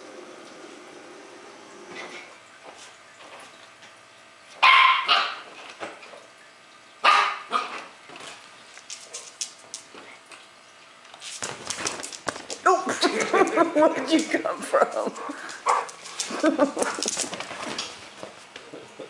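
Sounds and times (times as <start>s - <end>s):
dog barking: 4.6s - 5.4s, 7.0s - 7.8s.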